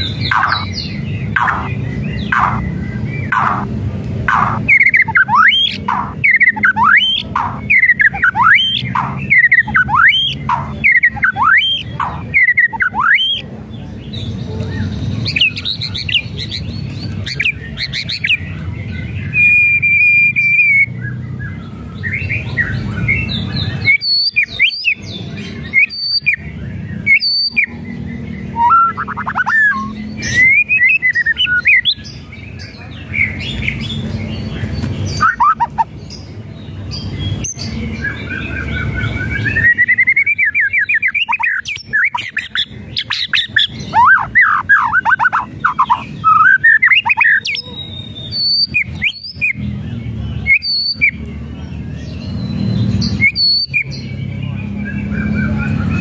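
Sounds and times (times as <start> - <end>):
bird singing whistled notes: 0.0 - 3.7, 4.3 - 13.5, 14.1 - 36.3, 36.9 - 56.0
sharp cracking bird notes: 0.0 - 13.4.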